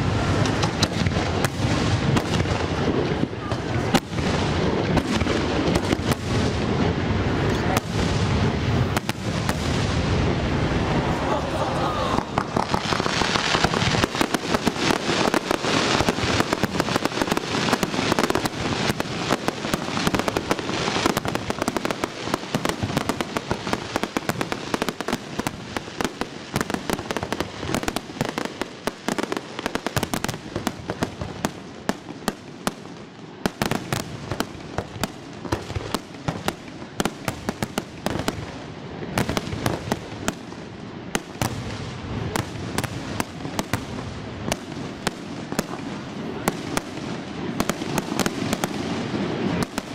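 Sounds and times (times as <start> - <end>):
firework crackle: 0.0 - 49.9
firework shells bursting: 12.2 - 25.2.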